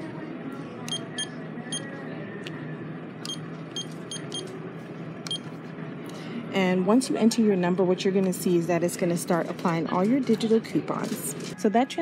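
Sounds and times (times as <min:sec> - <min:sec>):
store background noise: 0:00.0 - 0:12.0
keypad beeps: 0:03.3 - 0:04.5.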